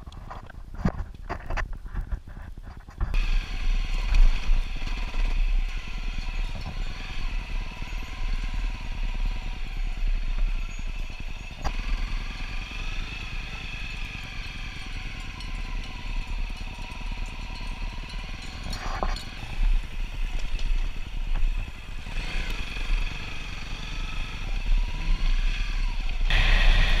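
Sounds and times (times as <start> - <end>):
motorcycle engine at low revs: 2.9 - 27.0
tyres hissing on loose gravel: 26.3 - 27.0.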